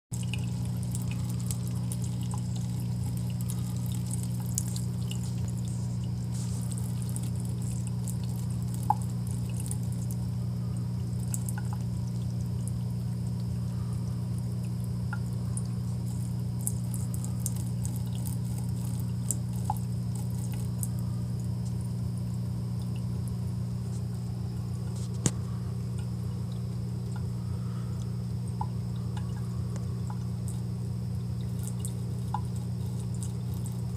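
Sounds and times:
faucet water running into sink: 0.1 - 10.3, 10.9 - 13.8, 14.4 - 23.6, 30.0 - 33.9
steady low hum: 0.1 - 33.9
cat lapping water: 0.2 - 10.3, 10.9 - 13.5, 14.1 - 23.5, 30.0 - 33.9.

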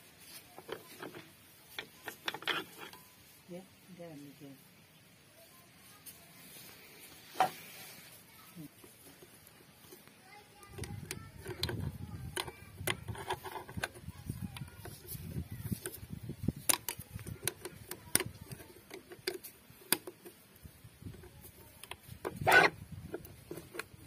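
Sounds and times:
brief metal scrape: 7.2 - 8.1.

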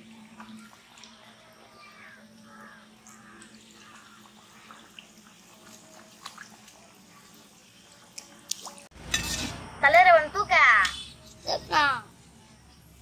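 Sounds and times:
bird calls: 1.8 - 4.8
dough sizzling in hot oil: 3.2 - 10.0.

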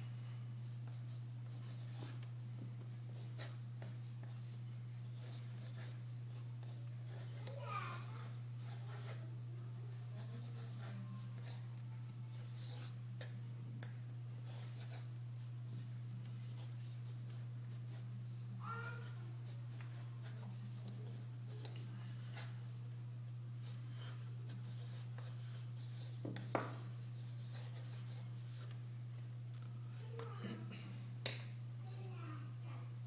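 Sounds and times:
steady low hum: 0.0 - 33.0
pencil sketching on paper: 3.1 - 7.6, 8.2 - 9.2, 9.8 - 11.6, 12.3 - 13.0, 14.4 - 15.5, 18.8 - 22.8, 23.6 - 28.7.

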